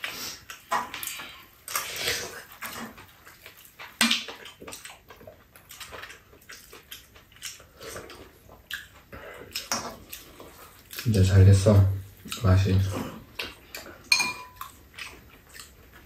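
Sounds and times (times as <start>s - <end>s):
wet chewing: 0.0s - 16.0s
metal spoons scraping bowls: 14.1s - 14.6s
sharp clink: 14.1s - 14.6s.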